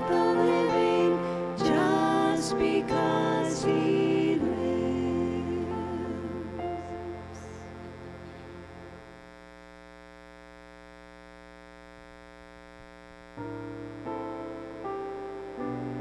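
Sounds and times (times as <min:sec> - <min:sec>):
keyboard chords: 0:00.0 - 0:09.3, 0:13.4 - 0:16.0
electrical mains hum: 0:00.0 - 0:16.0.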